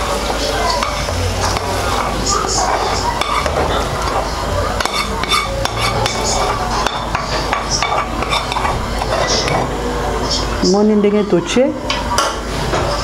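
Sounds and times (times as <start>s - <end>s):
spoon scraping a frying pan: 0.2s - 10.4s.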